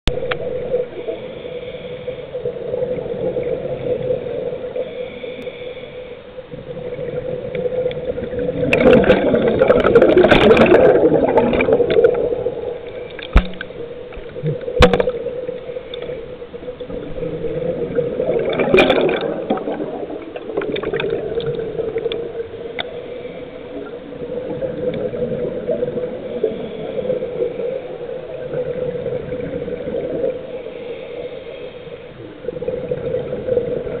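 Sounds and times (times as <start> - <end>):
underwater low hum: 0.0 - 34.0
gurgling rush of bubbles: 2.4 - 4.8, 6.5 - 22.6, 23.7 - 30.6, 32.2 - 34.0.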